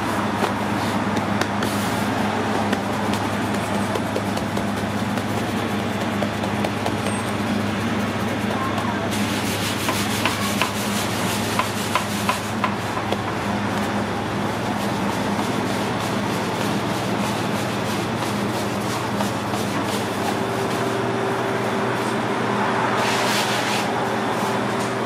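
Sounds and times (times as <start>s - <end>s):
low machine hum: 0.0s - 23.1s
hands patting dough on counter: 0.4s - 1.8s, 2.4s - 9.0s, 9.8s - 20.8s.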